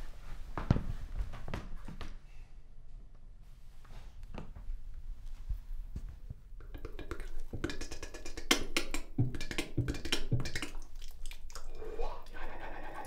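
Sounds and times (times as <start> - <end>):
clicking popping mouth noises: 6.6 - 13.0.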